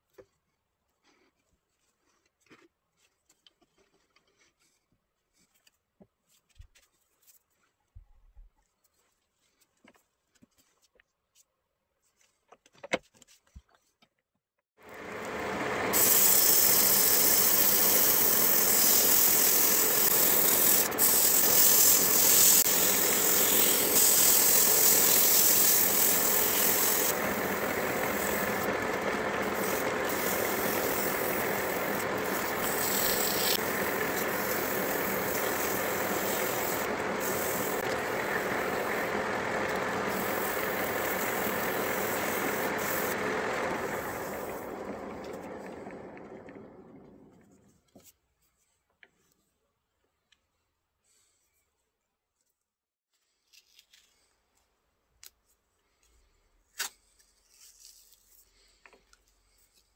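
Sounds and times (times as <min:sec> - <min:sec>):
wood lathe hum: 0:14.8 - 0:47.4
sandpaper hissing on wood: 0:15.9 - 0:44.5
sandpaper rubbing: 0:15.9 - 0:44.6.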